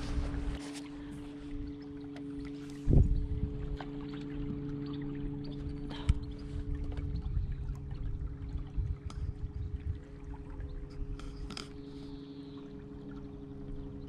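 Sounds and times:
trolling motor humming: 0:00.0 - 0:14.0
water lapping against hull: 0:00.0 - 0:14.0.

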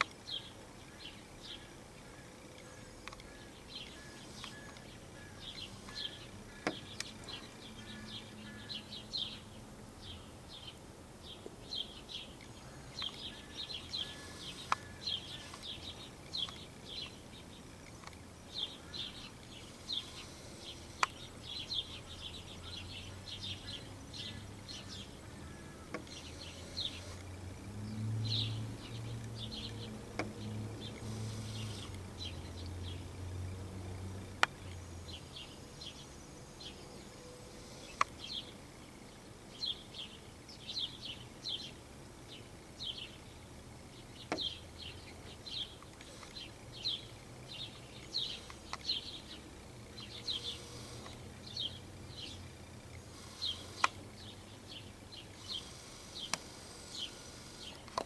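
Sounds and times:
sharp clicks: 0:00.0 - 0:00.3, 0:01.9 - 0:08.8, 0:11.4 - 0:22.4, 0:23.4 - 0:34.9, 0:37.8 - 0:38.4, 0:44.2 - 0:58.0
sparrows chirping: 0:00.0 - 0:58.0.

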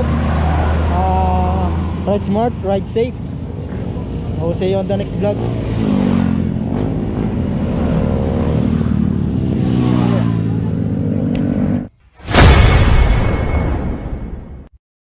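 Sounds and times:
motorcycles passing: 0:00.0 - 0:11.9
boom sound effect: 0:12.2 - 0:14.7.

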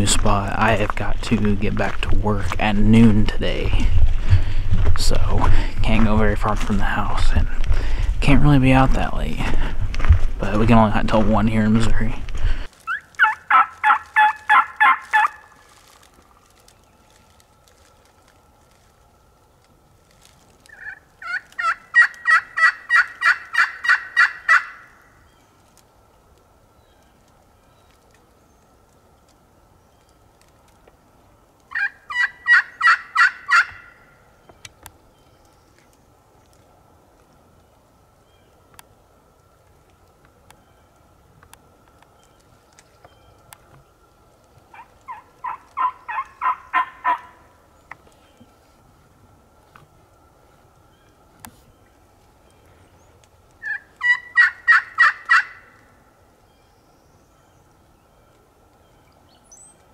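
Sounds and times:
turkey call hen yelps: 0:12.9 - 0:15.5, 0:20.7 - 0:24.9, 0:31.7 - 0:34.1, 0:44.7 - 0:47.4, 0:53.6 - 0:55.8.

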